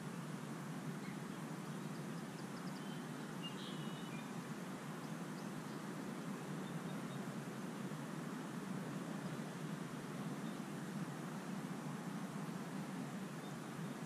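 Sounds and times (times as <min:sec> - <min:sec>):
outdoor ambient noise: 0:00.0 - 0:14.0
faint high bird chirps: 0:01.0 - 0:04.3.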